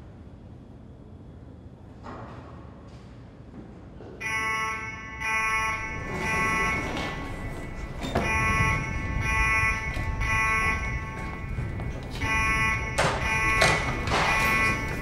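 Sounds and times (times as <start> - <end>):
electronic alarm horn buzzing: 4.2 - 15.0.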